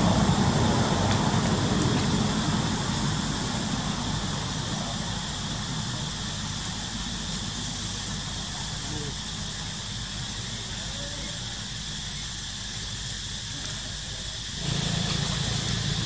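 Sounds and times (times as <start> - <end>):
distant engine rumble: 0.0 - 16.0
steady hiss: 0.0 - 16.0.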